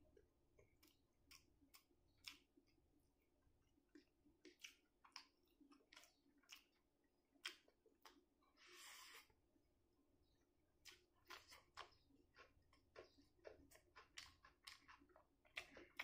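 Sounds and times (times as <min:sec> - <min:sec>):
wet clicks of chewing food: 0:00.0 - 0:08.6, 0:10.2 - 0:16.0
fingers mixing food on plate: 0:10.8 - 0:16.0.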